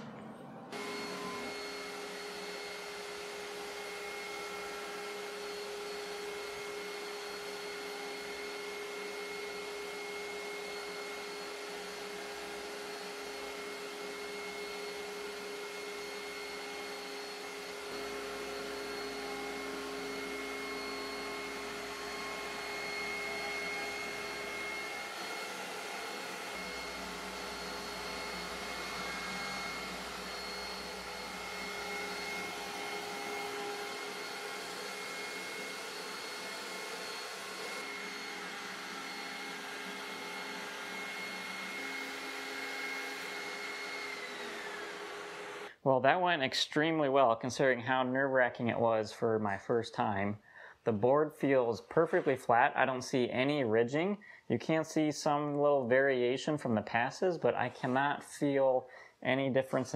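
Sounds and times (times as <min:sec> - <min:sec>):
router spindle whine: 0:00.0 - 0:45.7
dust collector suction: 0:00.7 - 0:45.7.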